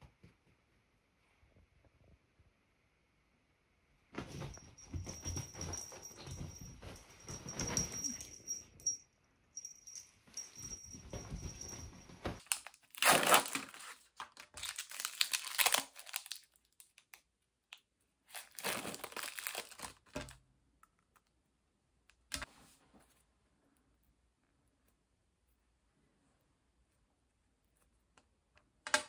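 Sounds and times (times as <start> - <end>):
syringe wrapper crinkling and tearing: 12.4 - 20.2.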